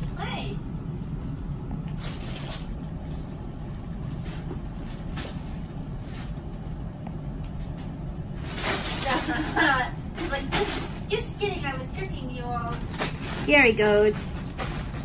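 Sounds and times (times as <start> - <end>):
steady low hum: 0.0 - 15.0
plastic packaging crinkling: 1.8 - 9.6, 11.8 - 15.0.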